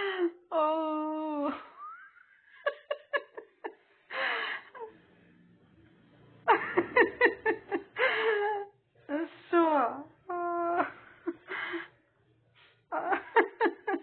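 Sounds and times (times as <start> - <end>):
woman laughing: 1.1 - 3.8, 6.5 - 8.7, 10.3 - 11.9, 12.9 - 14.0.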